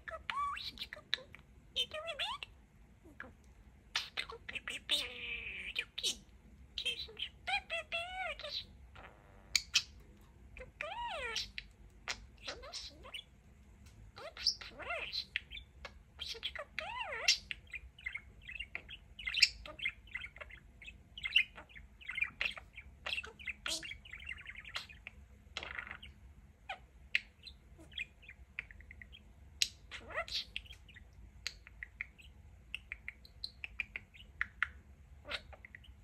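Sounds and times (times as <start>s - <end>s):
budgerigar chattering: 0.0s - 2.5s, 3.9s - 6.2s, 6.8s - 10.0s, 10.6s - 13.3s, 14.2s - 36.0s.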